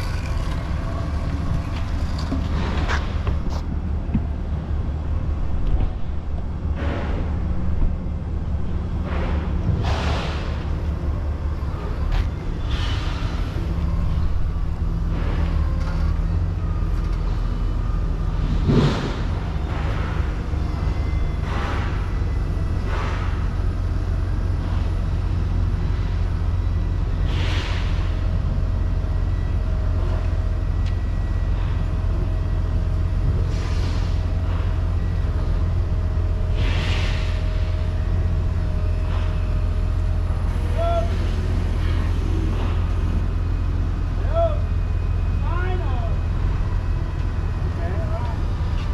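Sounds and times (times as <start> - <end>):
vehicle engine rumbling: 0.0 - 48.9
short hisses: 36.6 - 37.4.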